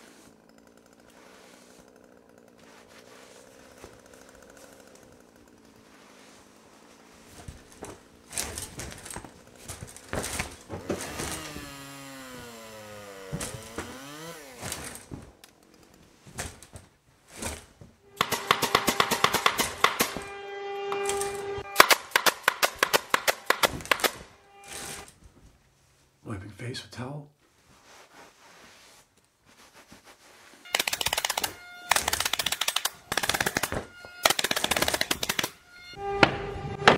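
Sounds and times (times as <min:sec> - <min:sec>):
nail gun firing: 0:18.2 - 0:20.3, 0:20.9 - 0:24.9, 0:30.7 - 0:35.6
wooden pieces knocking: 0:20.9 - 0:24.2.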